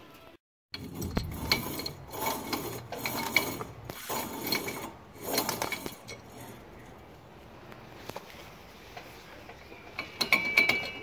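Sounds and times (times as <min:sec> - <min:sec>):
wheel hub rubbing and scraping: 0:00.7 - 0:11.0.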